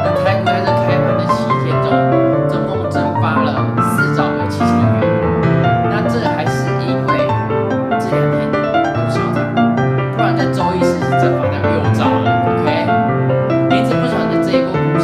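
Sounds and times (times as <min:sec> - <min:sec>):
piano music: 0:00.0 - 0:15.0
man talking: 0:00.1 - 0:05.0, 0:05.9 - 0:07.4, 0:08.0 - 0:09.5, 0:10.2 - 0:13.0, 0:13.7 - 0:15.0.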